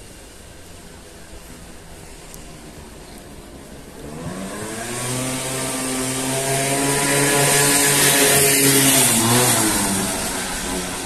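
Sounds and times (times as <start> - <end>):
vehicle engine passing by: 4.0 - 11.0.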